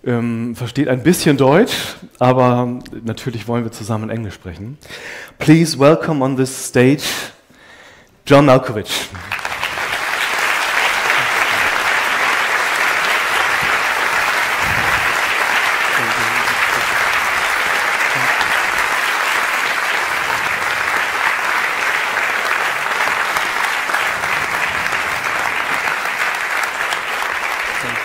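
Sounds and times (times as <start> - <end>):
audience applauding: 9.1 - 28.0.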